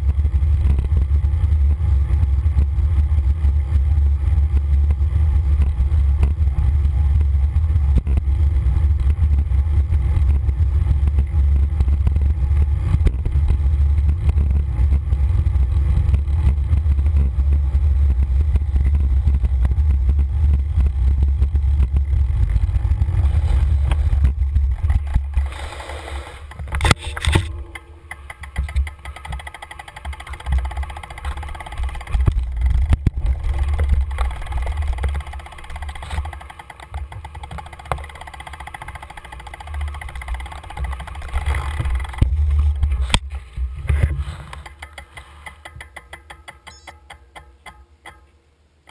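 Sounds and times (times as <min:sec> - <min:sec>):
wind rumbling on microphone: 0:00.0 - 0:27.6, 0:30.0 - 0:36.4.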